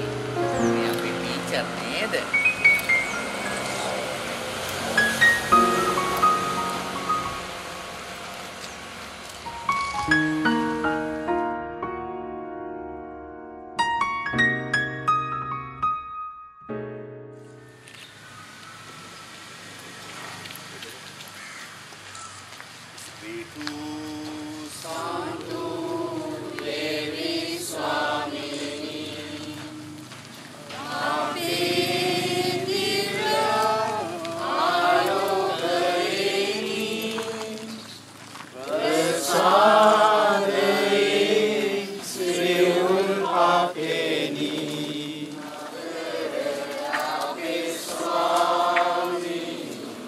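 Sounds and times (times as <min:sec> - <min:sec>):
group of voices chanting: 0:23.8 - 0:30.0, 0:30.6 - 0:37.8, 0:38.6 - 0:50.0.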